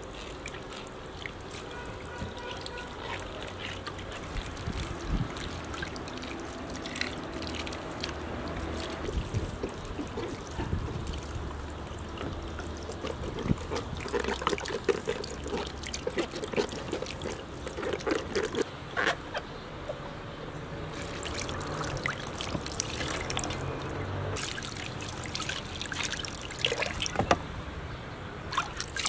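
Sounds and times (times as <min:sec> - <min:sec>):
water trickling into metal basin: 0:00.0 - 0:18.7, 0:20.9 - 0:27.4, 0:28.5 - 0:29.0.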